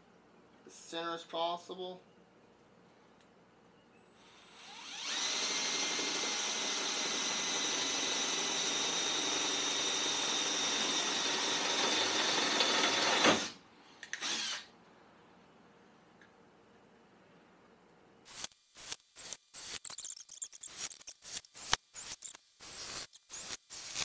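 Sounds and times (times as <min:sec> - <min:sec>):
power drill boring through sheet metal: 0:04.2 - 0:13.6, 0:14.2 - 0:14.7, 0:20.6 - 0:24.0.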